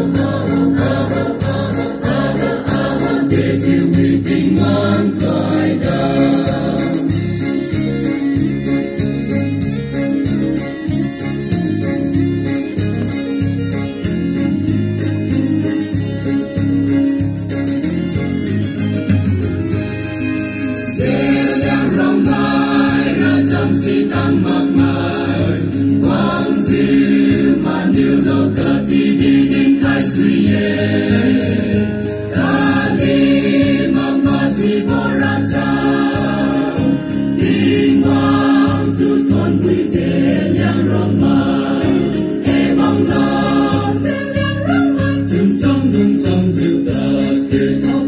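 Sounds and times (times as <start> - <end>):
mixed choir singing in harmony: 0.0 - 7.9, 20.9 - 48.0.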